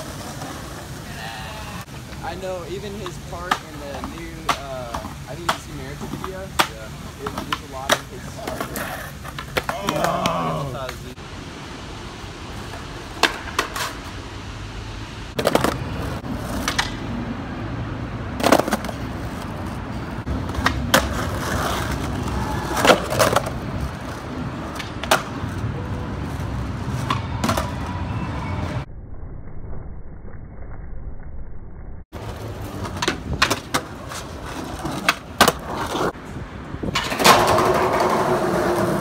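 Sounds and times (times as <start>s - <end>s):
skateboard wheels rolling on concrete: 0.0s - 28.9s, 32.1s - 39.0s
skateboard clacking on ground: 1.8s - 11.2s, 12.6s - 14.2s, 15.4s - 17.2s, 18.4s - 27.9s, 32.2s - 36.2s, 36.8s - 39.0s.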